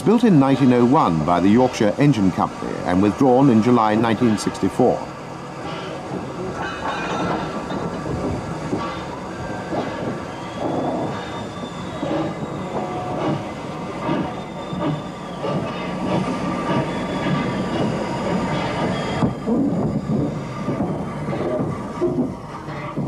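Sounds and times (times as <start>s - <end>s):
rolling stock rumbling: 0.0s - 23.0s
high wheel squeal: 0.4s - 23.0s
buffers and couplings clanking: 5.6s - 23.0s.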